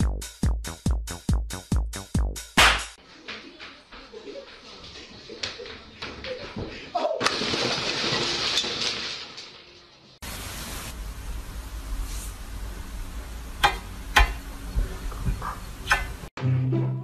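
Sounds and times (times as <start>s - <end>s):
hiss and low rumble: 10.2s - 16.3s.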